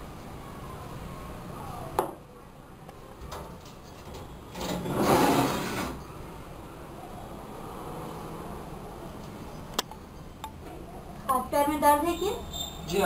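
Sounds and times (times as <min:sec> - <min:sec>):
loud rustling rubbing noise: 0:04.6 - 0:06.0.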